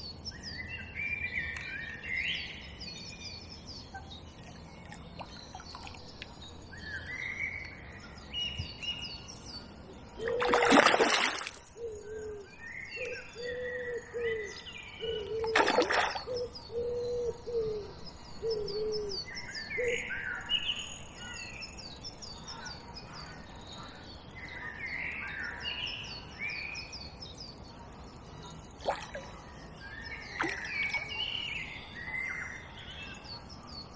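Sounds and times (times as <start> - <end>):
songbirds chirping and singing: 0.0 - 33.9
splashes in water: 10.2 - 11.7, 15.5 - 16.4, 28.8 - 29.3, 30.4 - 31.2.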